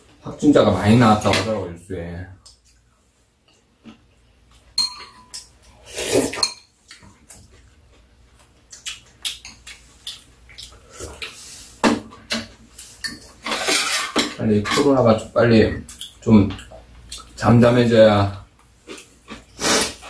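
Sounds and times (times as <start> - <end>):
utensils clinking against bowls: 4.8 - 5.5
utensils clattering: 12.3 - 15.0.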